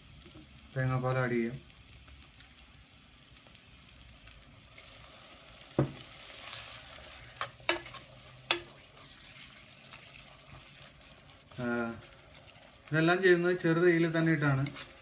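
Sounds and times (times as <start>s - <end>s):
food sizzling in a pot: 0.0s - 15.0s
wooden spoon stirring: 6.4s - 15.0s.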